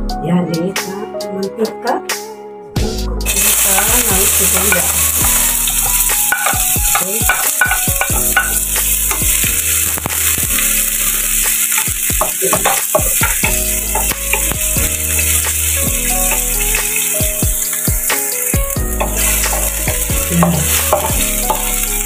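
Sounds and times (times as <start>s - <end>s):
onion sizzling in hot oil: 3.3s - 22.0s.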